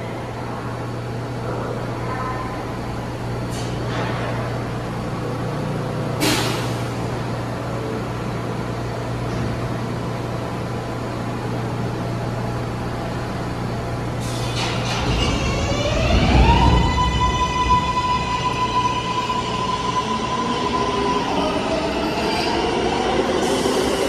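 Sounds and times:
subway train low hum: 0.0 - 24.0
air brake hisses: 6.2 - 6.8.

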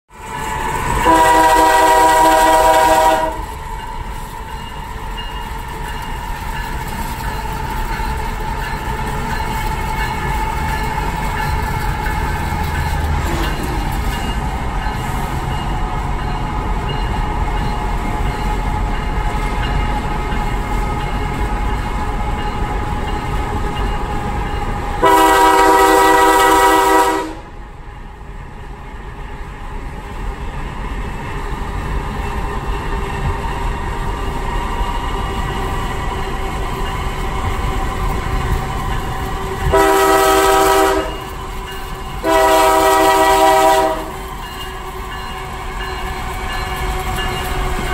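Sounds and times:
rumble of passing train: 0.1 - 47.9
locomotive air horn blasts: 1.0 - 3.6, 25.0 - 27.5, 39.4 - 41.5, 42.2 - 45.2.

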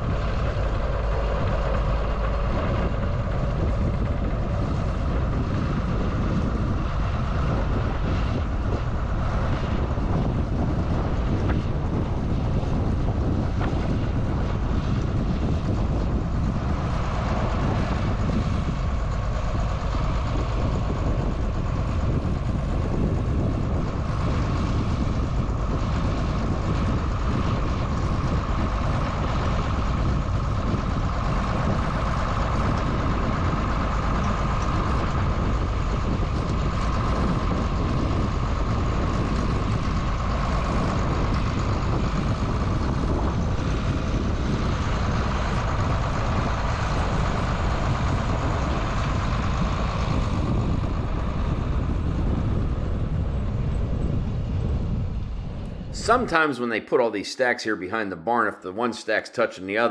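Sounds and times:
tractor diesel engine running: 0.0 - 56.6
high whine: 54.9 - 59.9.

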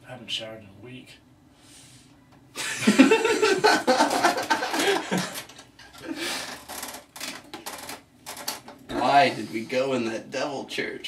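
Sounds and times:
men laughing: 2.6 - 6.4.

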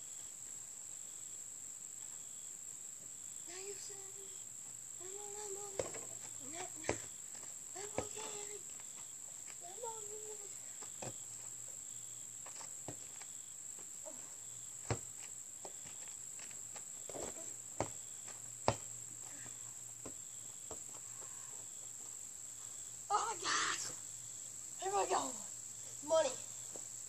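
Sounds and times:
insect chorus: 0.0 - 27.0
ball striking hoop: 18.6 - 18.9.

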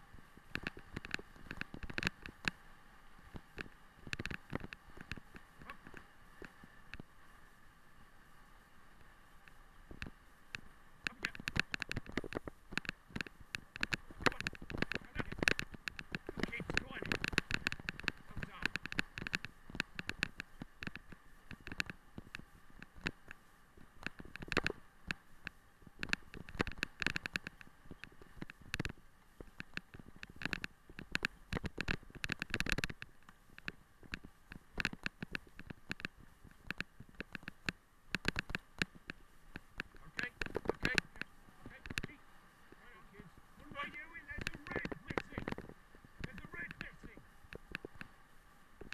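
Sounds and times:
bike knocking and rattling: 0.0 - 2.6, 3.2 - 7.2, 9.4 - 42.2, 42.8 - 48.2
rig rattling over rough track: 10.6 - 23.3, 38.2 - 42.2, 42.8 - 47.9.

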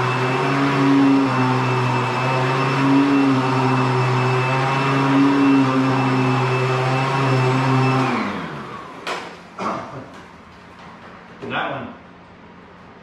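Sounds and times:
vacuum cleaner motor whining: 0.0 - 9.7.

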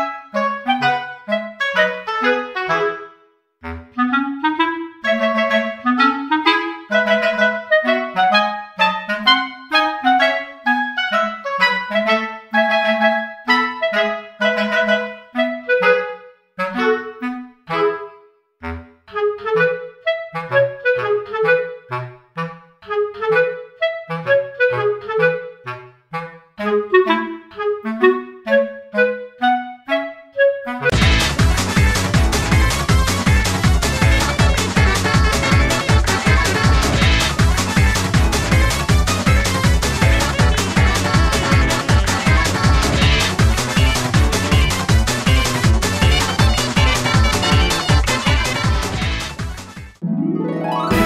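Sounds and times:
playful woodwind music: 0.0 - 51.0
bouncing bass line: 30.9 - 50.0, 50.8 - 51.0
music with quick pitched notes: 30.9 - 51.0.

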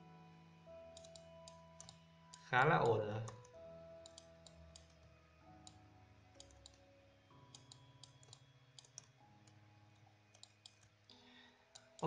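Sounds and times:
faint low held tones: 0.0 - 12.0
faint computer mouse clicks: 1.0 - 5.0, 7.5 - 9.6, 10.3 - 12.0.

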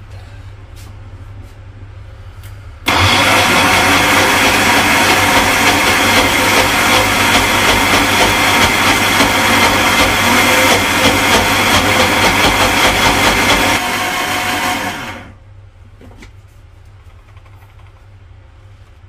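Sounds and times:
blender motor whirring: 2.9 - 15.4.

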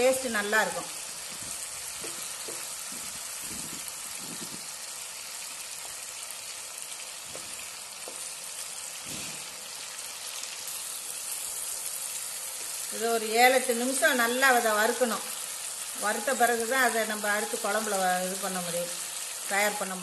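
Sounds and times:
prawns sizzling in oil: 0.0 - 20.0.

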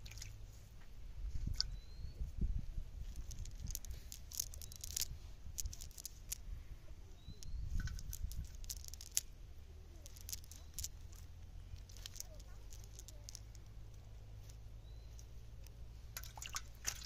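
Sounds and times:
net rustling and crackling: 3.0 - 6.5, 7.4 - 17.0.

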